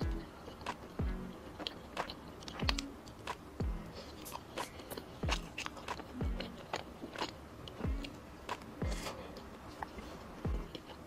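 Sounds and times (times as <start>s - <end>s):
music with deep steady beat: 0.0s - 4.0s, 4.6s - 9.2s, 10.3s - 11.0s
chewing sounds: 0.0s - 11.0s.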